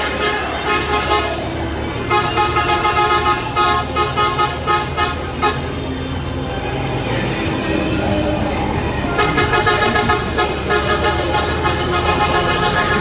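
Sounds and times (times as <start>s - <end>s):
car horns honking: 0.0s - 6.2s, 8.8s - 13.0s
low engine rumble: 0.0s - 13.0s.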